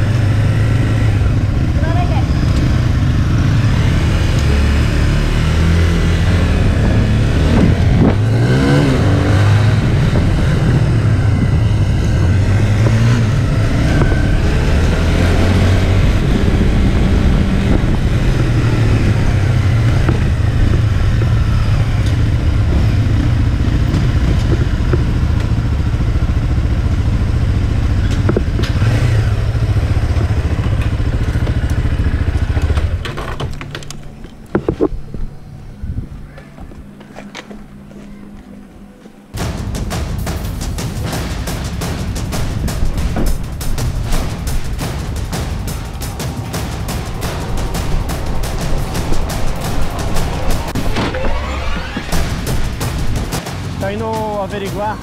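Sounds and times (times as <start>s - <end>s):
motorcycle engines running: 0.0s - 55.0s.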